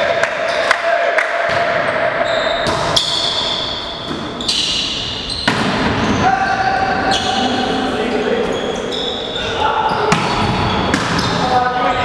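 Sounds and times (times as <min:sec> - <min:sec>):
shoes squeaking on court: 0:01.9 - 0:11.5
volleyball being struck: 0:05.4 - 0:06.0.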